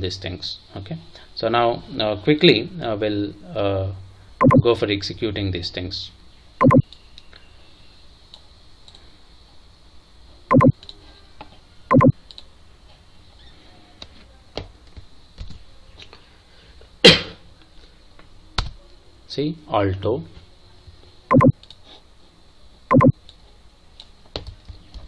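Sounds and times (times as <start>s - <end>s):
computer keyboard typing: 4.4s - 4.6s, 6.6s - 6.8s, 10.5s - 10.7s, 11.9s - 12.1s, 21.3s - 21.5s, 22.9s - 23.1s.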